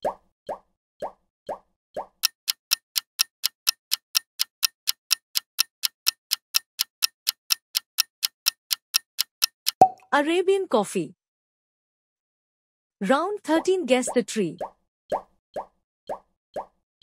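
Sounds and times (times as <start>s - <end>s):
clock ticking rapidly: 2.0s - 9.8s.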